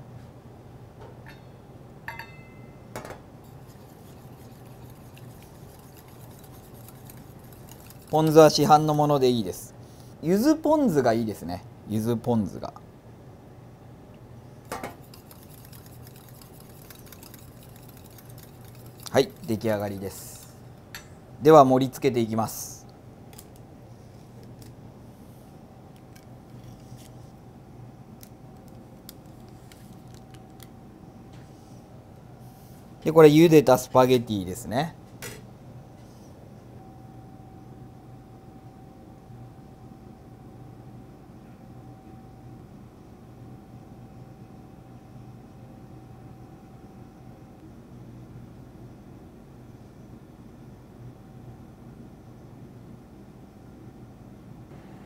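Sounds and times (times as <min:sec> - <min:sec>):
steady low hum: 0:00.0 - 0:55.0
whisk ticking against metal bowl: 0:03.6 - 0:09.2, 0:15.0 - 0:20.5
paper strip crinkling: 0:28.6 - 0:30.7.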